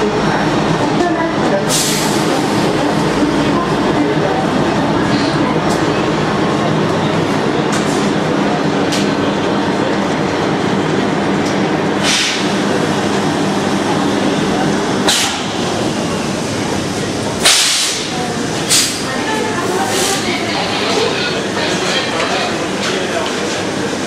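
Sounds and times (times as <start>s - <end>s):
electric locomotive droning: 0.0s - 24.0s.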